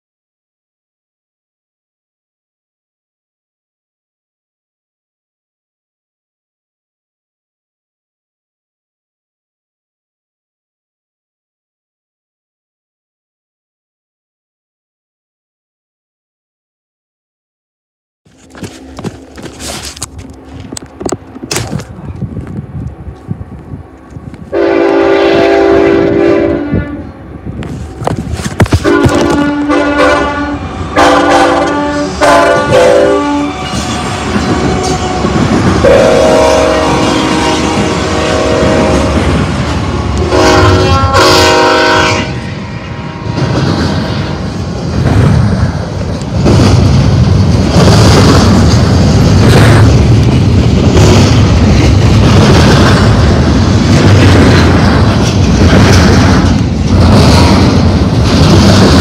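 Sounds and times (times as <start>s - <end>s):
train rumbling past: 18.3s - 59.0s
locomotive air horn blasts: 24.5s - 27.2s, 28.8s - 39.2s, 39.8s - 44.5s.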